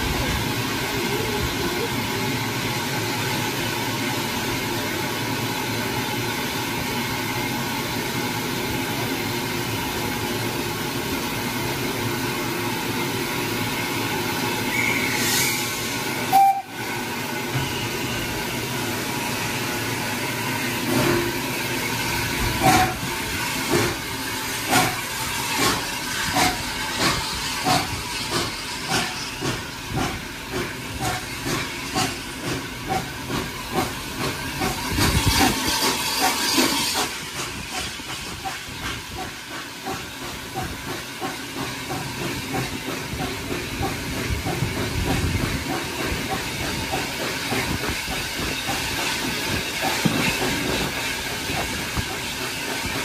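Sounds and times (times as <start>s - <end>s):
steam hissing: 0.0s - 53.0s
steam locomotive exhaust beats: 0.0s - 53.0s
steam whistle: 14.7s - 16.9s.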